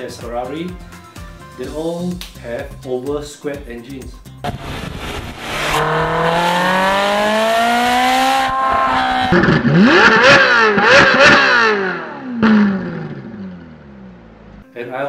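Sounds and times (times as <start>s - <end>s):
sports car engine revving: 4.4s - 14.6s.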